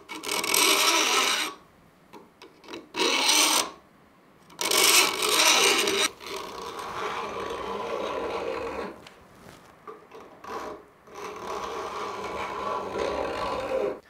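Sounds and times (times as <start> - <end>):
steel file on saw teeth: 0.1 - 1.6, 4.6 - 9.0.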